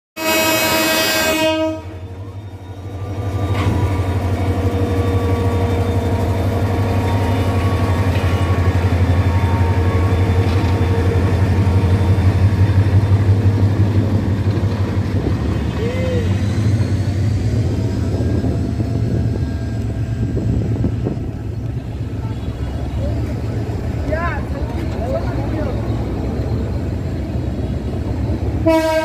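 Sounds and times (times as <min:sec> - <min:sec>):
locomotive horn blast: 0:00.2 - 0:02.2, 0:21.6 - 0:23.3, 0:28.6 - 0:29.0
diesel locomotive engine rumble: 0:00.2 - 0:29.0.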